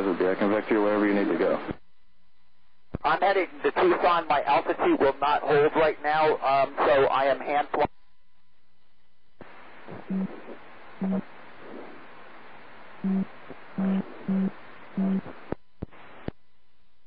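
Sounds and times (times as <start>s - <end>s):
radio hiss: 0.0s - 1.8s, 2.9s - 7.9s, 9.4s - 16.4s
short low-pitched tones: 7.9s - 12.0s, 13.0s - 15.8s.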